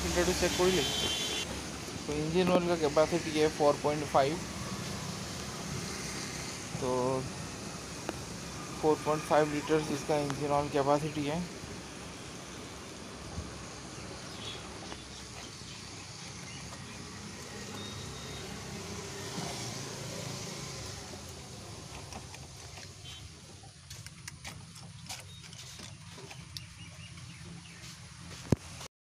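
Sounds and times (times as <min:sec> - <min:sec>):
vehicle engine humming: 0:00.0 - 0:28.9.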